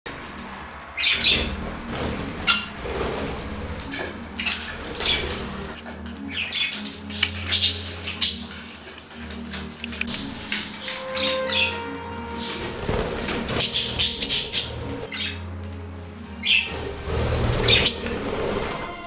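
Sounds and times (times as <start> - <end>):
budgerigars chirping: 4.4 - 8.8, 13.5 - 15.4, 17.6 - 18.2.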